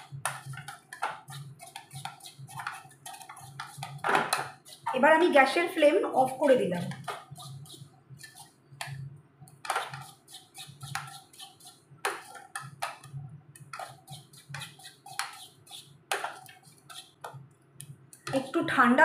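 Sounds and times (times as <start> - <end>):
spoon scraping a metal pot: 0.0 - 5.4, 6.2 - 17.4, 18.2 - 18.7.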